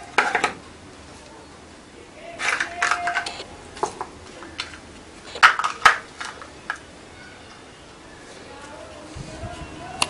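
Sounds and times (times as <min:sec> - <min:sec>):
plastic clicking and rattling: 0:02.4 - 0:06.9.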